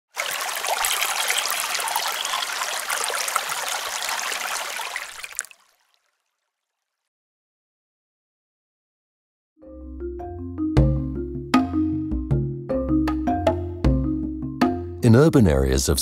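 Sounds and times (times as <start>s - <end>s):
flowing splashing water: 0.0s - 7.0s.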